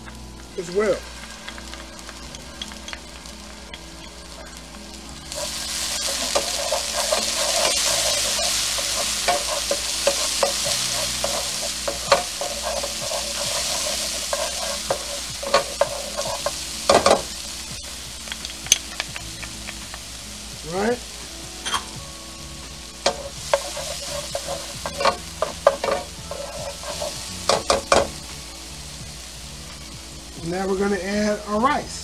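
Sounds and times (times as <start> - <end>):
shallots and garlic sizzling in oil: 0.0 - 32.0
spatula scraping pan: 5.2 - 17.4, 23.0 - 28.1.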